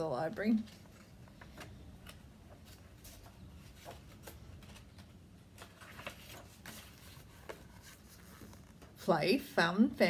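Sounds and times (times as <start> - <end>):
paper pages turning: 0.6 - 9.0.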